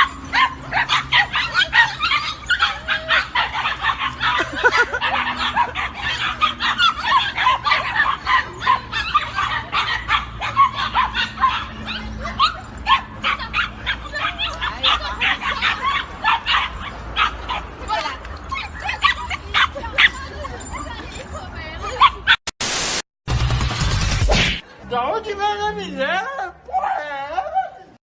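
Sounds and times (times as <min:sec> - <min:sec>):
puppies yipping and whimpering: 0:00.0 - 0:17.7, 0:18.4 - 0:21.2.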